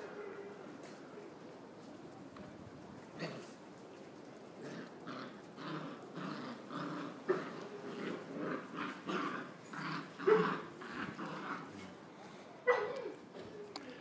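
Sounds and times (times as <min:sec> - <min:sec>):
puppies growling in play: 0:03.0 - 0:03.6, 0:04.5 - 0:12.1.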